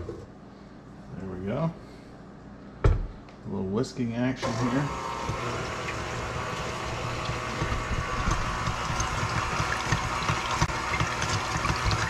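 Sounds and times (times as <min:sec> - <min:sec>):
stand mixer motor hum: 0:04.4 - 0:12.0.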